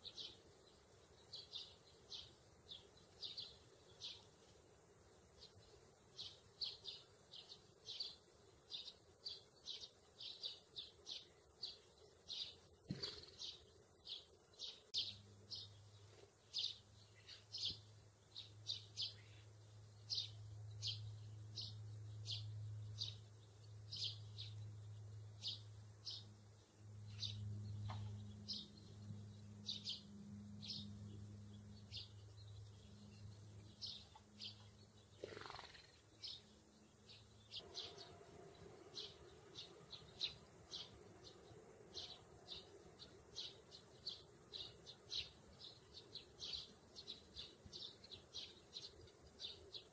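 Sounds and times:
sparrows chirping: 0:00.0 - 0:49.9
low steady hum: 0:13.6 - 0:35.2, 0:35.8 - 0:49.9.

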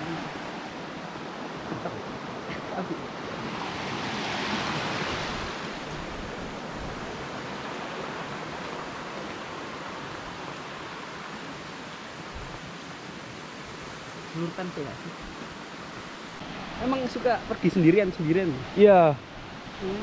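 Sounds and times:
waterfall rushing: 0:16.4 - 0:20.0.

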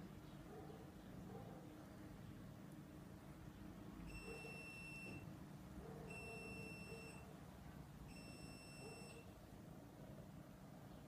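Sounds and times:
faint high electronic beep: 0:04.1 - 0:05.3, 0:06.1 - 0:07.2, 0:08.1 - 0:09.3.

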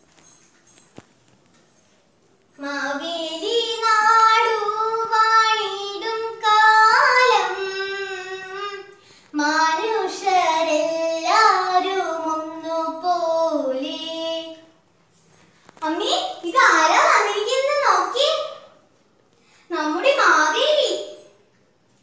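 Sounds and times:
girl singing unaccompanied: 0:02.6 - 0:14.9, 0:15.8 - 0:18.7.

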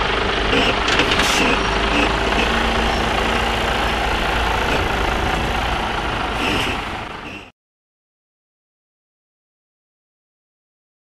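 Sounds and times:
lorry diesel engine at low speed: 0:00.0 - 0:07.5.

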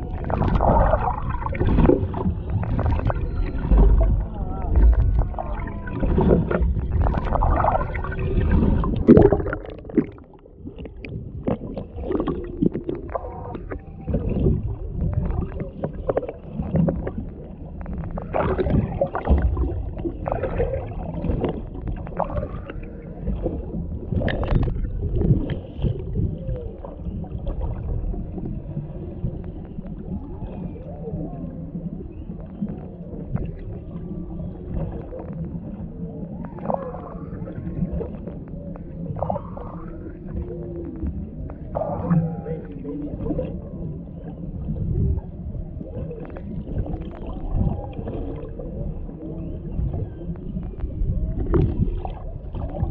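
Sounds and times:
low water rumble: 0:00.0 - 0:52.9
underwater clicks: 0:00.2 - 0:23.5, 0:24.1 - 0:26.4
whale moans and whoops: 0:02.9 - 0:08.1, 0:35.9 - 0:38.3, 0:39.0 - 0:44.4.

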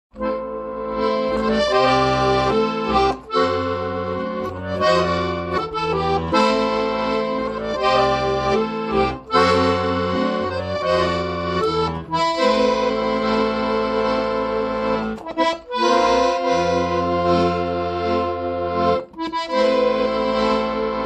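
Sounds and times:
button accordion playing melody: 0:00.1 - 0:21.0.

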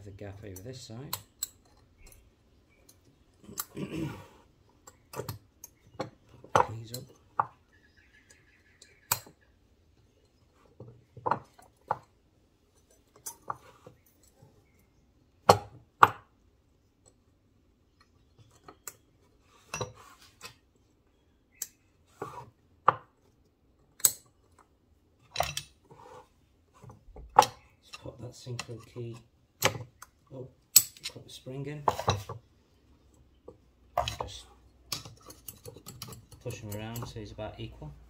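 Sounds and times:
metal parts clicking and clinking: 0:12.7 - 0:14.6, 0:23.8 - 0:25.8, 0:27.2 - 0:32.4, 0:34.0 - 0:38.0.

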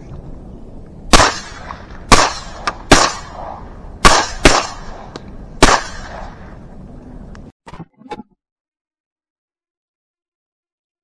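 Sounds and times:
shotgun blasts with echo: 0:01.1 - 0:06.5.

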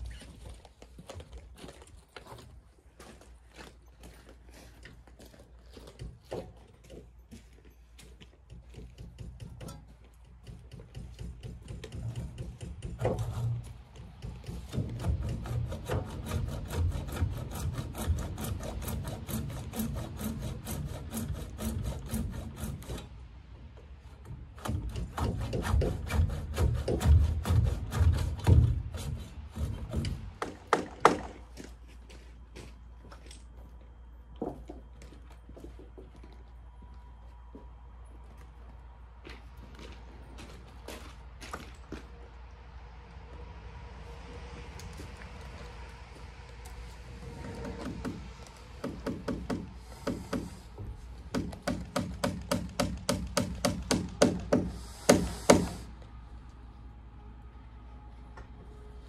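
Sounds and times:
handsaw cutting wood: 0:14.4 - 0:23.1, 0:24.6 - 0:30.3, 0:47.2 - 0:55.9.

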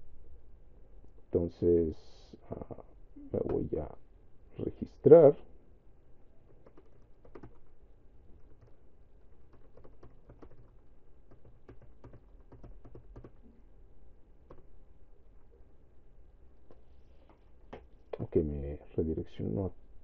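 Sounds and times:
keyboard typing: 0:06.5 - 0:13.4, 0:14.4 - 0:14.7.

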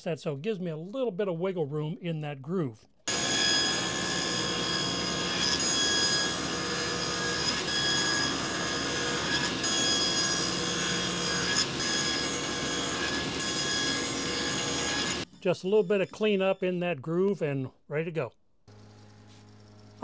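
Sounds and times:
table saw cutting wood: 0:03.1 - 0:16.2, 0:18.7 - 0:20.0.

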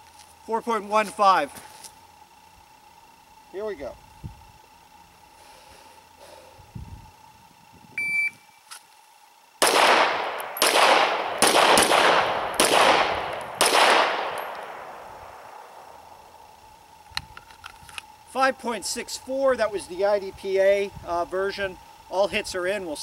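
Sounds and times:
shot timer beep: 0:08.0 - 0:08.6
gunshot echo: 0:09.6 - 0:14.9
pistol shots: 0:09.6 - 0:15.8.

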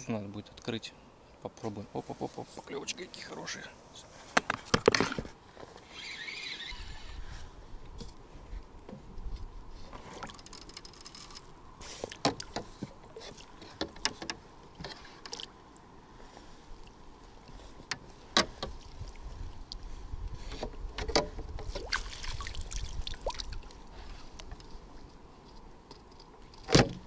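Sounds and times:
fishing tackle clicks and knocks: 0:10.2 - 0:11.5, 0:13.6 - 0:15.5
water splashing: 0:21.7 - 0:23.9.

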